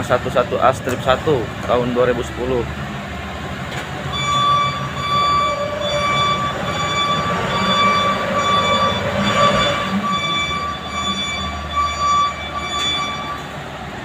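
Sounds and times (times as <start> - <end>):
low diesel rumble: 0.0 - 14.0
high-pitched machine whine: 4.1 - 13.6.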